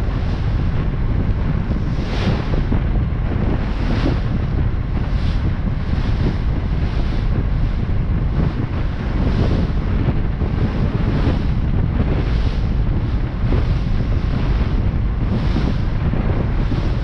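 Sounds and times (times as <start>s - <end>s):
water rushing along hull: 0.0s - 17.0s
wind buffeting microphone: 0.0s - 17.0s.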